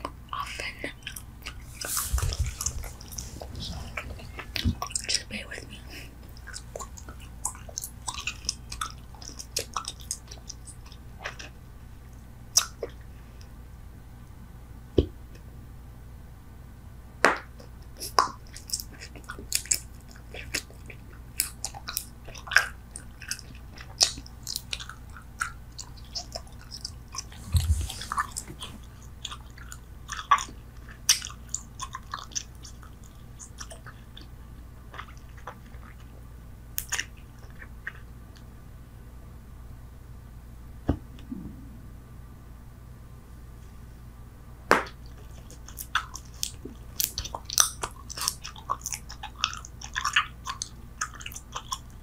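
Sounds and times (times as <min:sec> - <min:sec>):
gum chewing mouth smacks: 0:00.0 - 0:11.6, 0:12.5 - 0:13.0, 0:17.4 - 0:34.3, 0:34.9 - 0:36.1, 0:36.8 - 0:38.4, 0:45.0 - 0:52.0.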